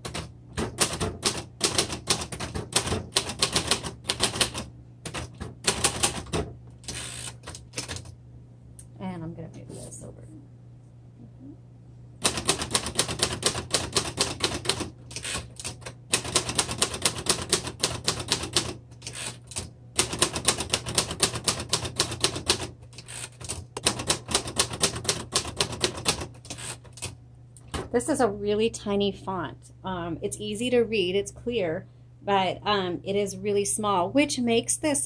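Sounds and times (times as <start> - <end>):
typewriter keystrokes clacking: 0.0 - 8.1, 12.2 - 27.2.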